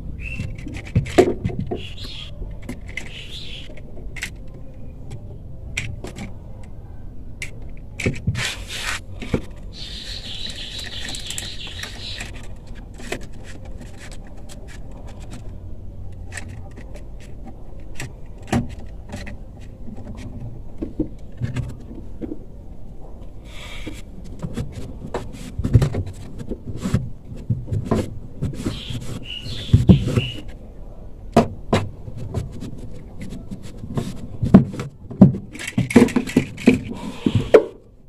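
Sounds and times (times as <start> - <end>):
rubber plug clicks and scrapes: 0.3 - 6.4, 7.4 - 22.4, 23.6 - 30.6.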